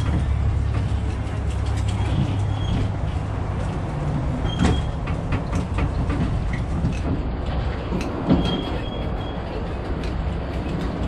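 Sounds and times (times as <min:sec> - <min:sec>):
carriage rattling and knocking: 0:00.0 - 0:09.0
tram rumbling: 0:00.0 - 0:11.0
short high squeaks: 0:04.4 - 0:05.0, 0:08.3 - 0:09.6.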